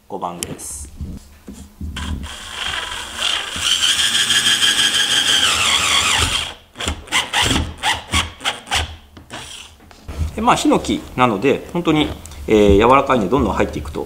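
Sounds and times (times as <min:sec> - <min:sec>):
drill motor whine: 0:02.0 - 0:07.5.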